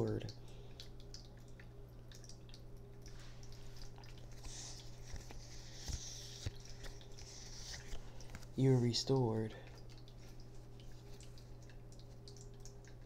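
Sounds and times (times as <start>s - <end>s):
soft hiss: 3.0s - 12.3s.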